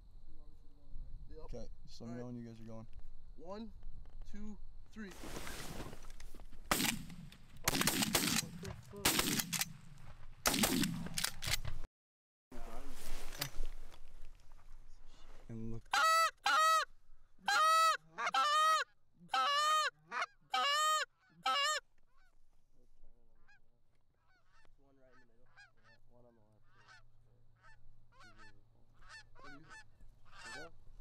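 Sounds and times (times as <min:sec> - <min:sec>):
geese honking: 0:15.9 - 0:22.4, 0:23.4 - 0:30.8.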